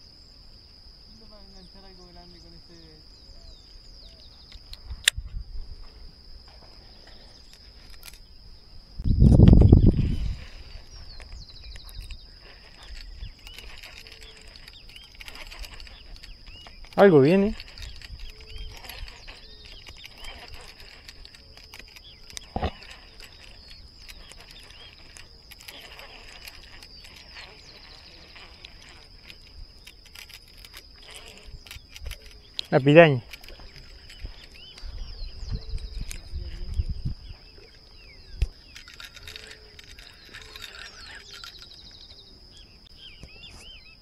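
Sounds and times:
insect drone: 0.0s - 44.0s
small clicks: 7.0s - 8.3s, 9.3s - 34.9s, 37.7s - 42.2s.

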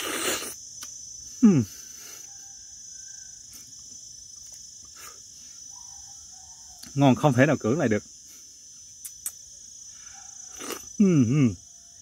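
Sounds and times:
insects chirring: 0.0s - 12.0s
man saying mmm: 1.4s - 1.8s, 11.0s - 11.6s.

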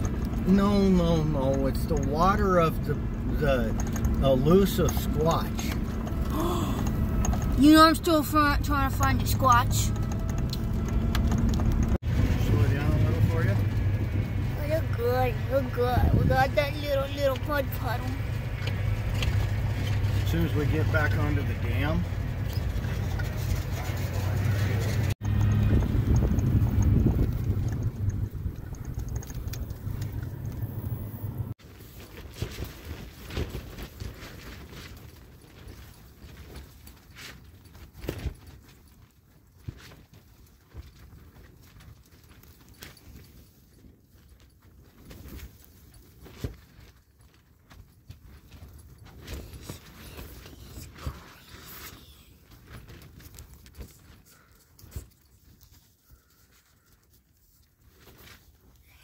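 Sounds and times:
clicks and rustling handling: 0.0s - 12.0s, 16.5s - 58.8s
vehicle engine rumbling: 0.0s - 36.5s, 48.1s - 57.1s.

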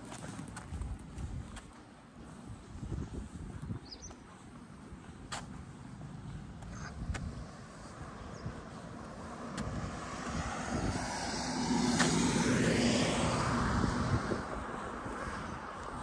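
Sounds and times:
vehicle driving past: 7.0s - 16.0s.

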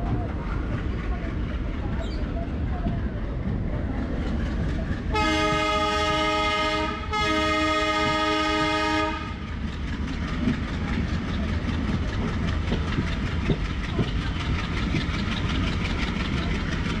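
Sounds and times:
wheels clattering on rails: 0.0s - 17.0s
locomotive horn blasts: 5.1s - 9.4s.

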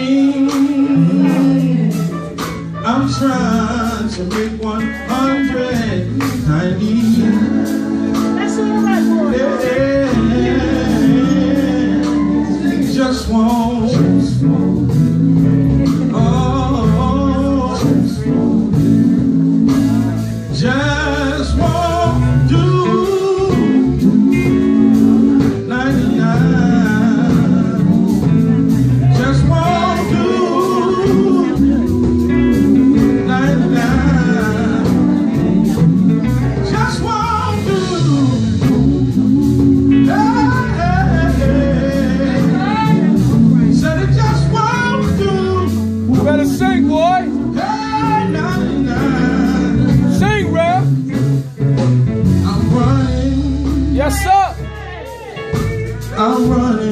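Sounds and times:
electric guitar: 0.0s - 56.9s
male quartet singing gospel: 0.0s - 56.9s.

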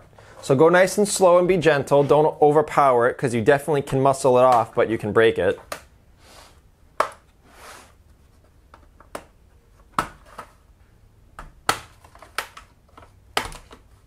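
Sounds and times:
plastic clips popping loose: 11.4s - 13.9s.

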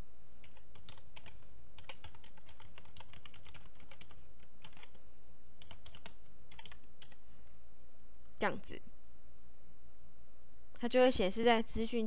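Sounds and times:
typing on computer keyboard: 0.4s - 5.0s, 5.6s - 7.2s.

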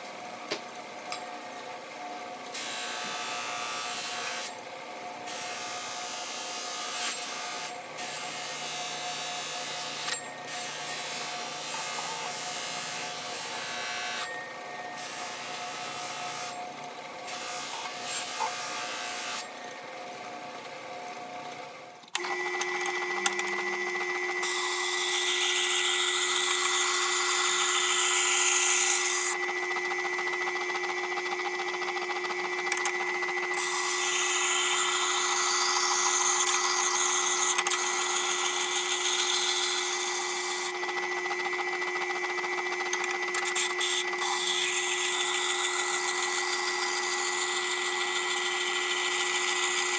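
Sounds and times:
electric motor hum: 22.0s - 49.9s.

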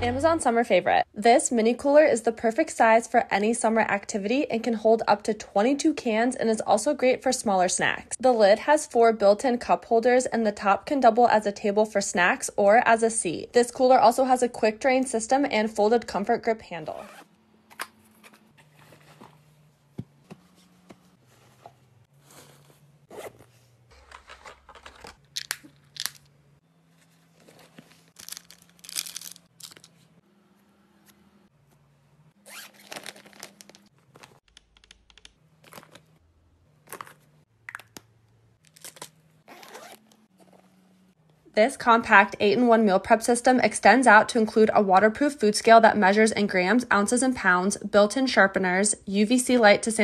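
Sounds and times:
zip being worked: 16.8s - 17.4s, 22.1s - 23.9s, 32.4s - 33.0s, 39.4s - 40.8s
fabric and plastic rustling: 17.8s - 26.0s, 26.9s - 30.2s, 32.5s - 34.5s.

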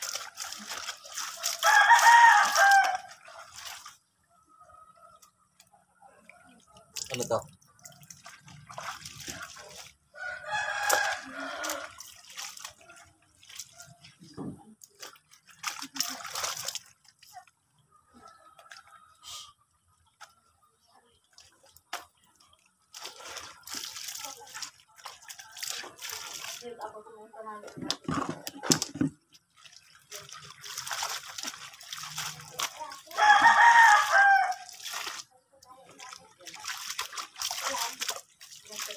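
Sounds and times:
clothes splashing in water: 0.0s - 4.1s, 6.5s - 17.5s, 21.2s - 27.0s, 27.9s - 38.9s
rooster crowing: 1.6s - 3.2s, 10.2s - 12.0s, 33.1s - 34.7s.

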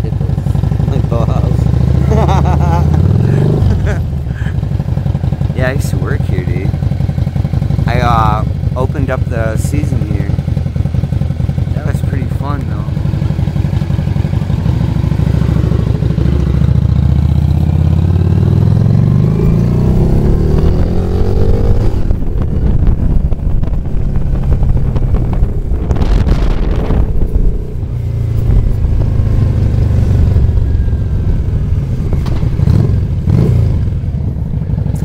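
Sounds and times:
rush of noise: 18.2s - 35.0s.

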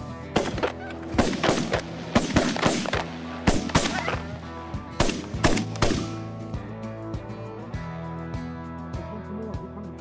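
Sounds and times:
background music: 0.0s - 10.0s
shotgun shots: 0.3s - 4.4s, 5.0s - 6.3s.

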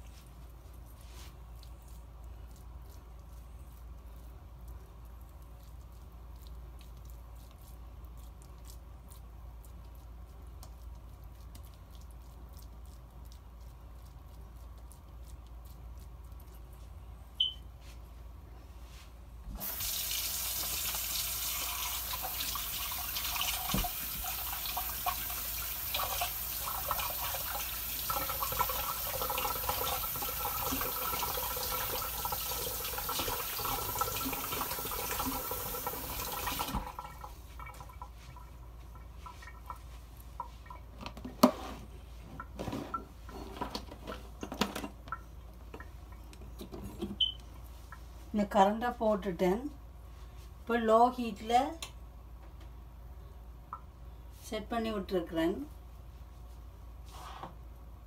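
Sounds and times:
tap water running into sink: 19.6s - 38.1s.

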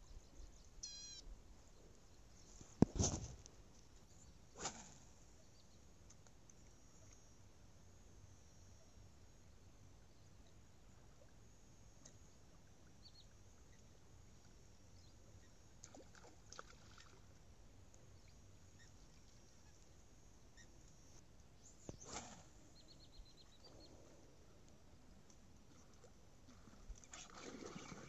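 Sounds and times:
short high chirps: 0.8s - 1.2s
faint high ticks: 6.0s - 7.3s, 12.0s - 12.3s.

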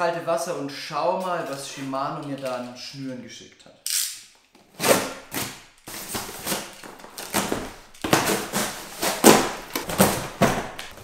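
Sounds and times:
packing tape ripping: 3.9s - 11.0s
cardboard box being torn open: 4.8s - 11.0s.

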